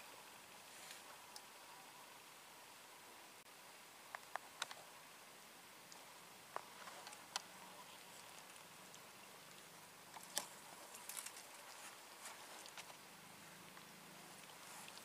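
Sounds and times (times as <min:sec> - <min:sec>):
faint sharp clicks: 0:00.9 - 0:01.5, 0:04.1 - 0:04.8, 0:13.7 - 0:15.0.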